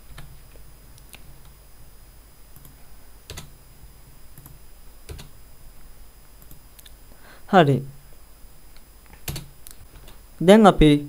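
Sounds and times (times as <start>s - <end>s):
keyboard and mouse clicks: 0.1s - 1.6s, 2.5s - 3.5s, 4.3s - 5.3s, 8.8s - 10.2s.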